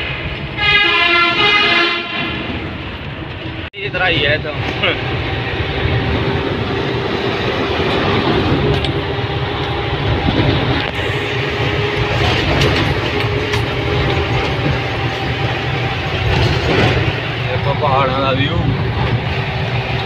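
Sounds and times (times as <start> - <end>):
road and wind noise: 0.0 - 20.0
truck engine drone: 0.0 - 20.0
steady whine: 7.6 - 16.1.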